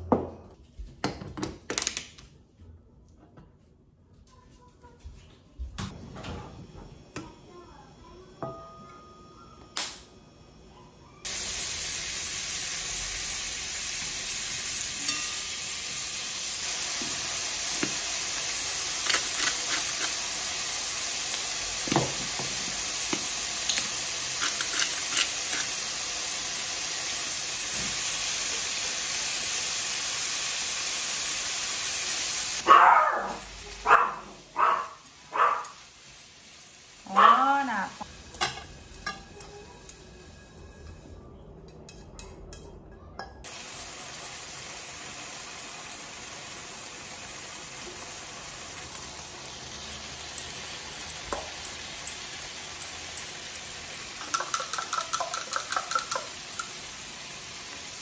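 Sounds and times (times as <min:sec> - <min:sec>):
meat sizzling in a frying pan: 0:11.2 - 0:40.6, 0:43.5 - 0:58.0
pepper grinder crackling: 0:16.6 - 0:26.6, 0:50.3 - 0:57.0.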